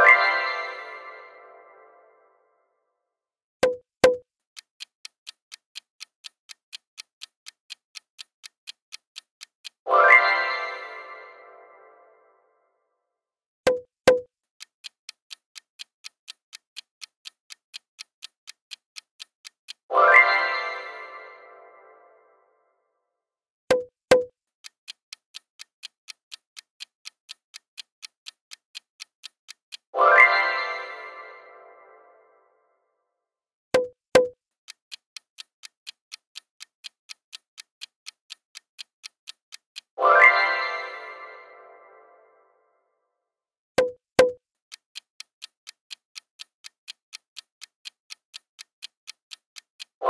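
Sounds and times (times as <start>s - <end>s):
clock ticking: 3.6s - 11.1s, 13.6s - 21.3s, 23.7s - 31.2s, 33.8s - 41.3s, 43.8s - 50.0s.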